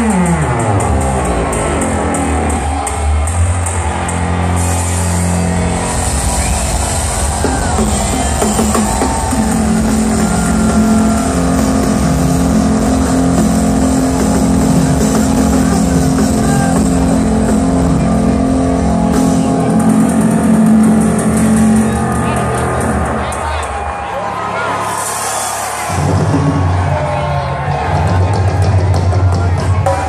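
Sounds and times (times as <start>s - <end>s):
steady drumming: 0.0s - 24.0s
synth and bass tones: 0.0s - 25.0s.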